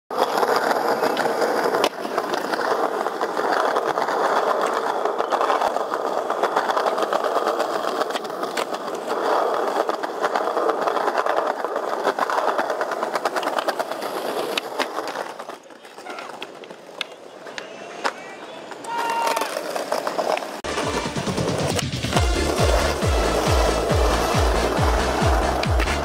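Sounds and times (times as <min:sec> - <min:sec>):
skateboard wheels rolling on stone: 0:00.1 - 0:26.0
wheels clicking over joints: 0:00.2 - 0:26.0.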